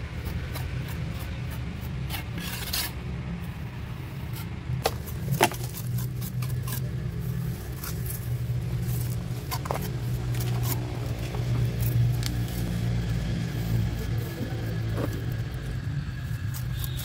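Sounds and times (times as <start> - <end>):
steady low hum: 0.0 - 17.0
trowel scraping wet mortar: 0.1 - 3.0, 4.3 - 12.8, 16.3 - 17.0.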